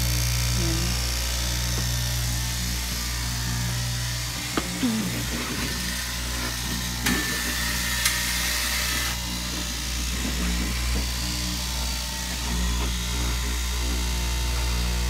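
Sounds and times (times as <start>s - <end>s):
cloth cutting machine motor hum: 0.0s - 15.0s.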